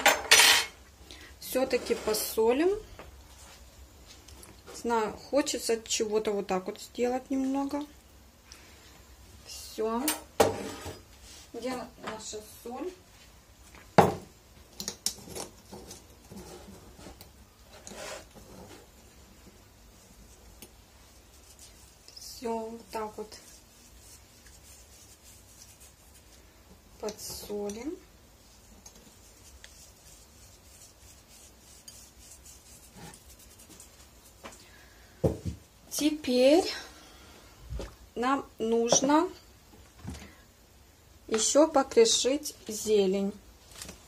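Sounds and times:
salt sprinkled over salad: 19.8 - 26.5, 27.2 - 34.4.

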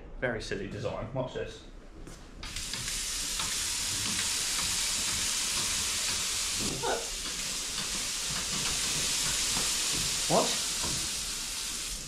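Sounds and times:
tap water rushing: 2.4 - 12.0.

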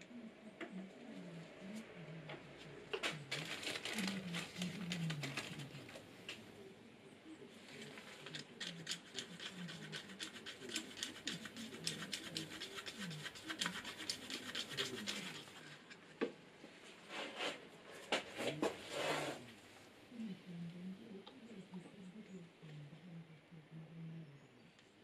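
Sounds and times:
cup rustling: 2.9 - 6.4
stick scraping inside plastic cup: 8.3 - 15.8.

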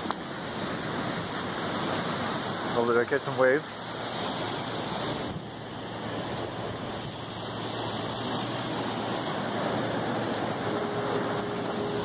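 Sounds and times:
wind noise: 0.0 - 2.8, 3.7 - 12.0
surf breaking on rocks: 0.0 - 12.0.

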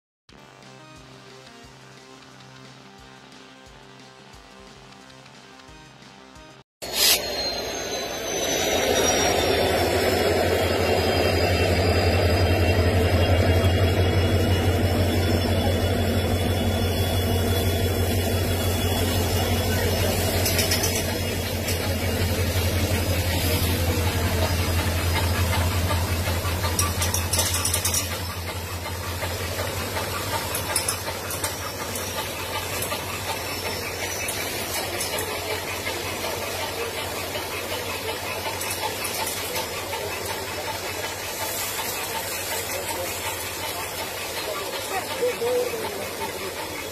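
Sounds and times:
faint high squeal: 6.8 - 19.8
train engine rumble: 6.9 - 46.9.

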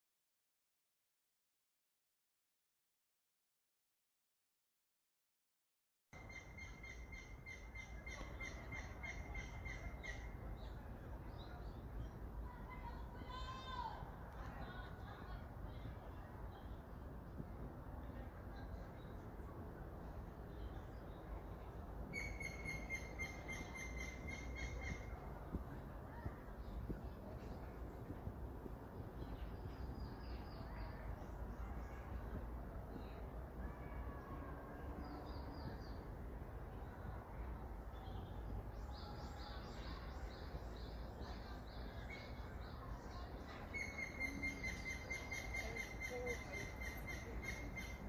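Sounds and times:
birdsong: 22.1 - 33.2, 37.9 - 48.0.

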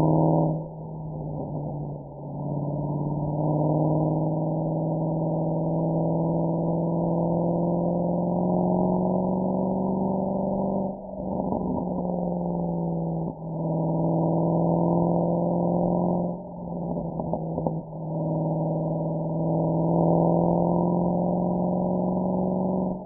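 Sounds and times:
car exhaust droning: 0.0 - 23.0.

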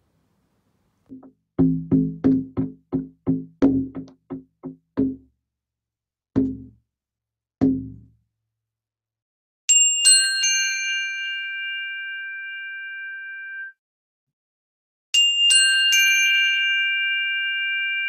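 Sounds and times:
bright bell-like chimes: 9.7 - 13.8, 15.2 - 18.0.

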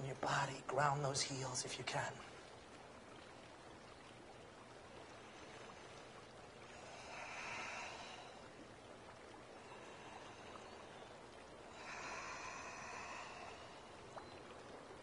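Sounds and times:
faint steady hiss: 0.0 - 15.0
soft breathing: 5.0 - 14.5.

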